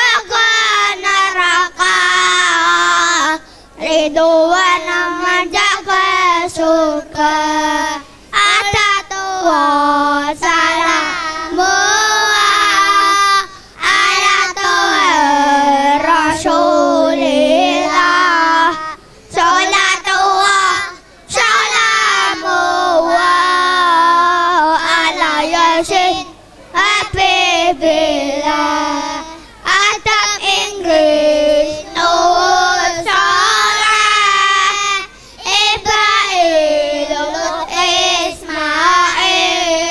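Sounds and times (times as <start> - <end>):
children singing into microphones: 0.0 - 39.9.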